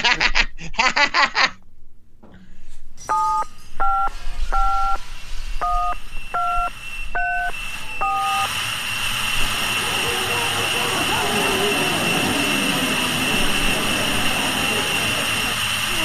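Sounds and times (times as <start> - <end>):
telephone keypad beeps: 3.1 - 5.0, 5.6 - 8.5
hiss: 4.2 - 16.0.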